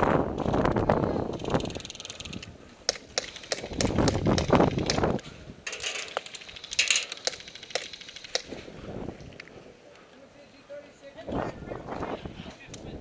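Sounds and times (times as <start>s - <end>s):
sharp clicks and knocks: 1.4s - 8.6s.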